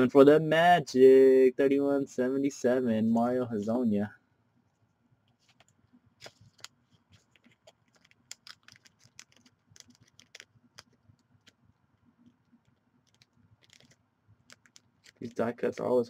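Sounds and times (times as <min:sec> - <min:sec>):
card scratching into sleeve: 0:05.4 - 0:11.6, 0:13.1 - 0:15.9.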